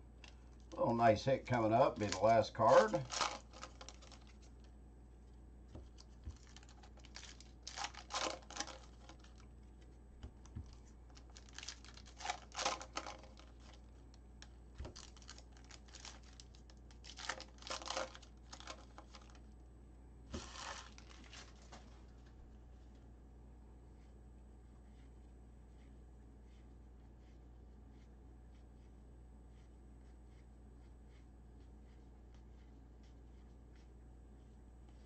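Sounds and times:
foil wrapper crinkling and tearing: 0:01.9 - 0:04.6, 0:06.0 - 0:09.5, 0:11.1 - 0:14.0, 0:14.8 - 0:19.4, 0:20.3 - 0:22.3.

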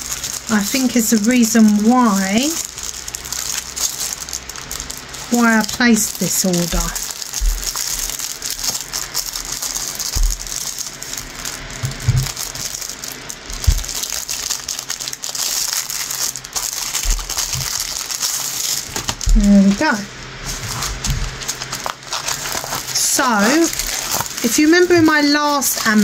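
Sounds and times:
plastic packaging rustling: 0:00.0 - 0:26.0
soft low thumps: 0:07.4 - 0:07.7.

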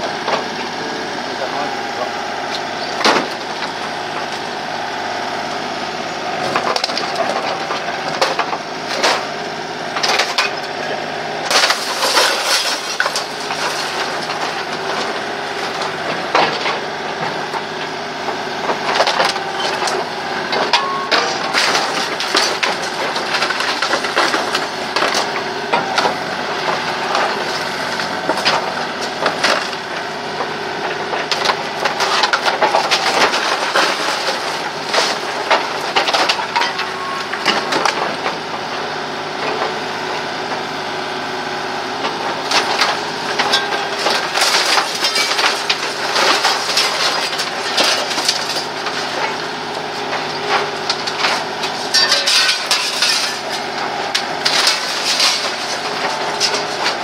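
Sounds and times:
excavator engine and hydraulics: 0:00.0 - 0:57.0
wooden boards cracking and splintering: 0:02.4 - 0:04.4, 0:06.4 - 0:10.8, 0:11.5 - 0:38.9, 0:42.0 - 0:57.0
falling debris knocks: 0:11.5 - 0:16.8, 0:18.7 - 0:29.9, 0:31.2 - 0:38.4, 0:42.5 - 0:57.0.

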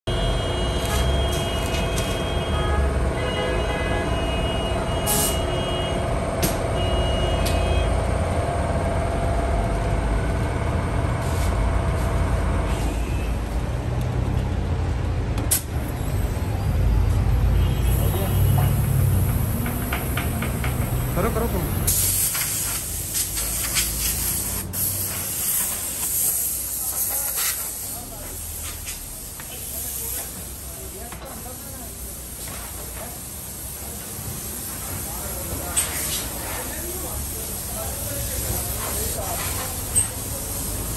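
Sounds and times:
workshop machinery humming: 0:00.1 - 0:40.9
compressed air hose hissing: 0:05.1 - 0:05.4, 0:21.9 - 0:40.9.

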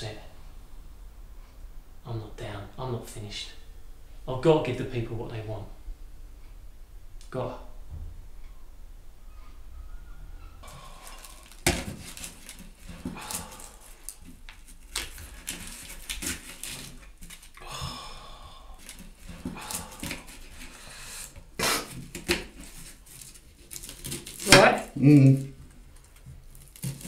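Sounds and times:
onion skins scraping: 0:10.6 - 0:17.6, 0:18.7 - 0:27.0.

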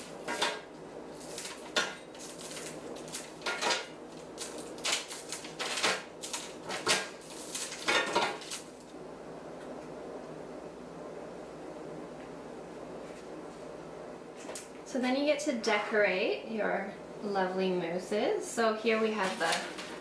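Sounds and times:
pieces clattering onto baking sheet: 0:00.2 - 0:03.9, 0:04.8 - 0:08.7.

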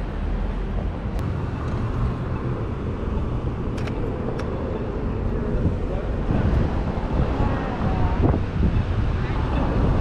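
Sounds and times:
low rumble of traffic: 0:00.0 - 0:10.0
sharp clicks: 0:03.7 - 0:04.5.

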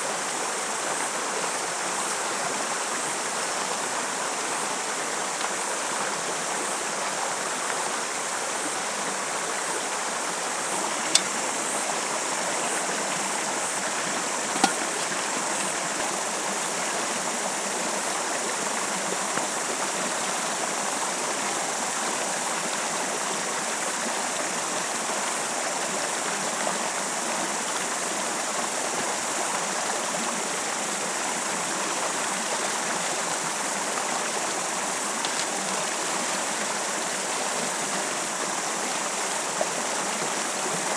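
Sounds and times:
stream rushing over boulders: 0:00.0 - 0:40.9.

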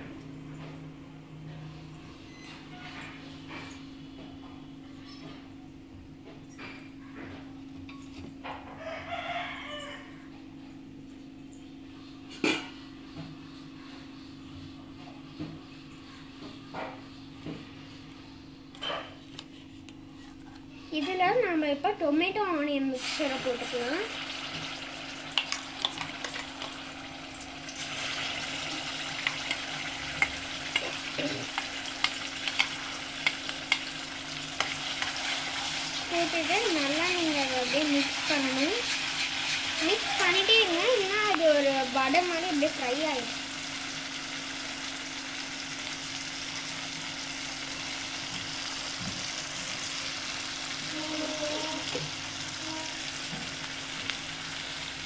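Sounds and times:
paste sizzling in hot oil: 0:23.0 - 0:55.0
metal spatula stirring: 0:34.6 - 0:35.7, 0:37.1 - 0:39.8.

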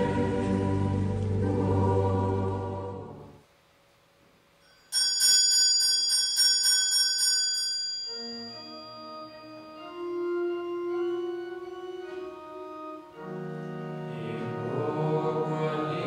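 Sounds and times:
hand bell rung rapidly: 0:04.7 - 0:08.5
sustained keyboard notes: 0:08.2 - 0:16.0.

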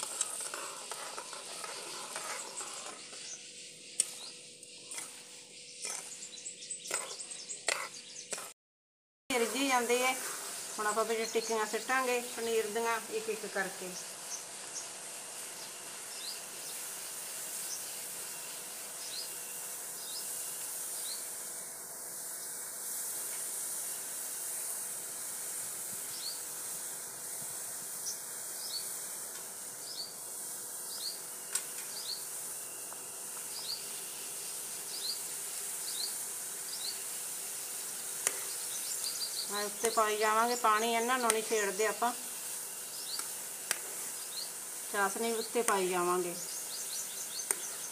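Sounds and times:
syrup simmering and bubbling: 0:00.0 - 0:03.1
birds chirping: 0:01.2 - 0:08.4, 0:10.7 - 0:18.0, 0:33.5 - 0:33.9, 0:37.8 - 0:42.2, 0:44.1 - 0:47.9.

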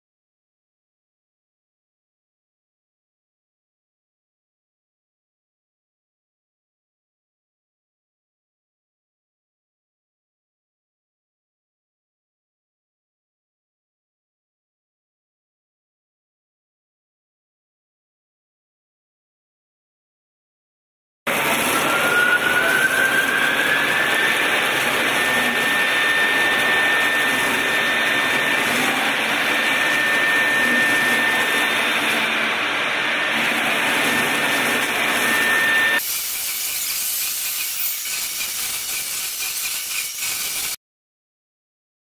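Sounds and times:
router spindle whine: 0:21.3 - 0:40.8
bit cutting foam hiss: 0:33.5 - 0:40.8.

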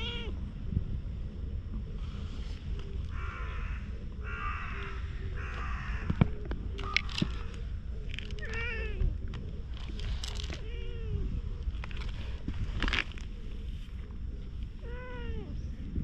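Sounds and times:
cat meowing: 0:00.0 - 0:00.4, 0:08.4 - 0:09.1, 0:14.8 - 0:15.6
crow cawing: 0:03.1 - 0:07.5.

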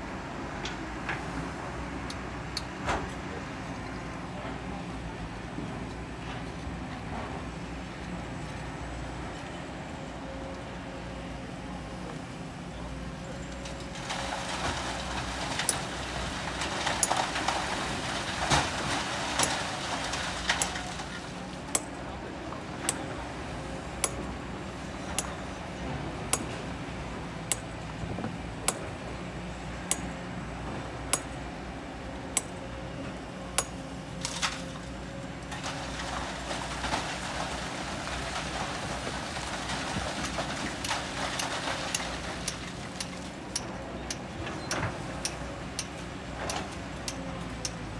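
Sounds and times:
excavator diesel engine running: 0:00.0 - 0:47.9
sand and rock pouring: 0:35.6 - 0:42.9.

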